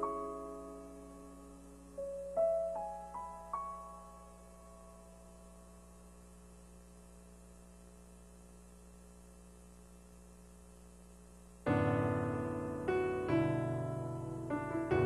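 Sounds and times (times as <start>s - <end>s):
piano notes ringing: 0.0s - 5.1s, 11.7s - 15.0s
faint steady hum: 0.0s - 15.0s.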